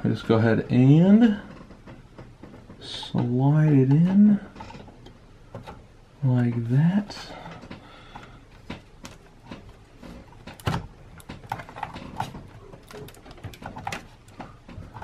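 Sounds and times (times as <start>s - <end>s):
graphics card clicks and knocks: 8.6s - 15.0s.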